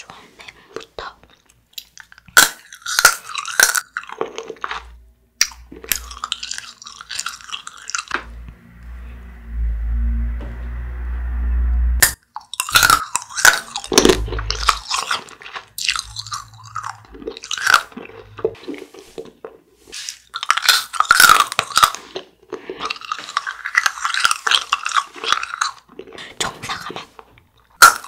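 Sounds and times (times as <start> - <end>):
crunching hard candy: 1.8 - 8.2, 12.3 - 19.6, 20.2 - 28.0
low rumbling sound effect: 7.9 - 12.2, 13.8 - 15.1, 15.8 - 18.6.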